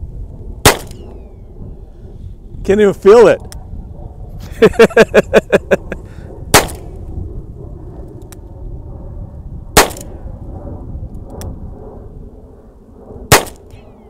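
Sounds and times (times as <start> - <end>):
low wind rumble: 0.0 - 14.0
handgun shots: 0.7 - 1.1, 6.6 - 6.9, 9.8 - 10.1, 13.3 - 13.7.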